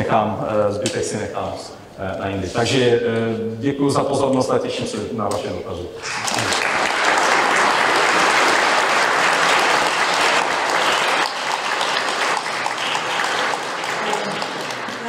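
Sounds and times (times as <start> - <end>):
large audience applauding: 6.0 - 15.0.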